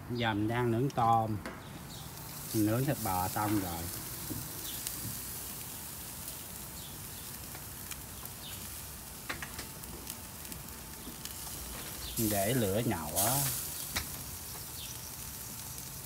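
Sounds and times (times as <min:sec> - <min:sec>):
prawns sizzling on a grill: 0:00.0 - 0:16.0.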